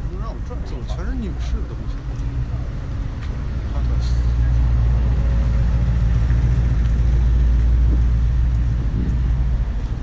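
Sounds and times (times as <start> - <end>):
faint street and traffic noise: 0.0 - 10.0
wind buffeting microphone: 4.6 - 10.0.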